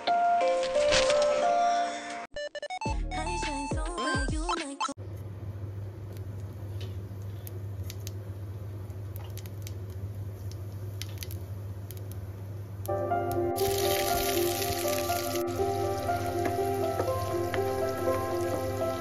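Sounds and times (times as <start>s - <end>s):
music: 0.0s - 4.9s, 12.9s - 19.0s
seeds crackling in hot oil: 5.8s - 13.0s, 13.6s - 19.0s
onions sizzling in oil: 13.6s - 19.0s.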